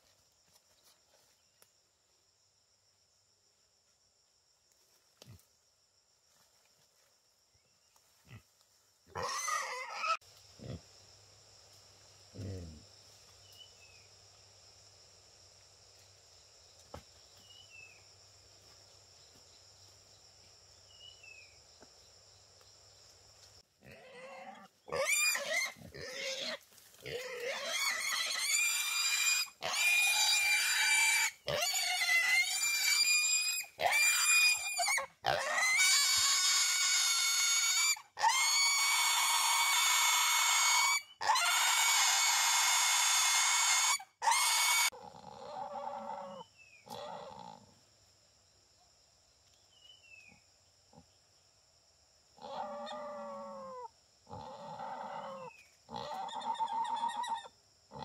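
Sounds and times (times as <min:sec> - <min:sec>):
wild boar squealing: 0:09.1 - 0:10.2, 0:23.9 - 0:47.6, 0:52.4 - 0:58.0.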